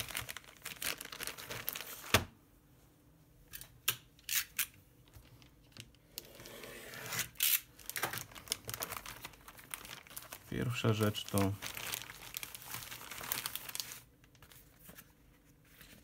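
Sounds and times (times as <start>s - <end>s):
plastic bag crackling: 0.0s - 2.2s, 7.7s - 14.8s.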